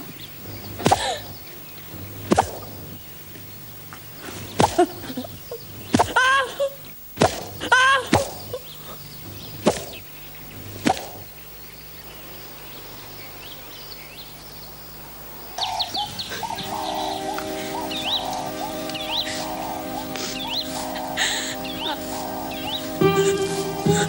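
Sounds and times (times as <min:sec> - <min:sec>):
birds chirping: 0:00.0 - 0:24.0
whip cracks: 0:00.8 - 0:01.2, 0:02.3 - 0:02.7, 0:07.2 - 0:08.5, 0:09.6 - 0:10.0, 0:10.8 - 0:11.3
soft music: 0:16.4 - 0:24.0.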